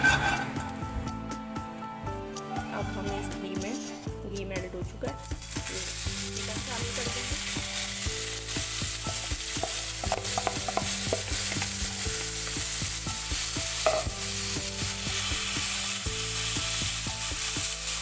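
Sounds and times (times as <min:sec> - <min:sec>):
spatula scraping and knocking pan: 0:00.0 - 0:00.7, 0:09.2 - 0:12.7, 0:13.3 - 0:15.9
chicken sizzling in a pan: 0:05.2 - 0:18.0.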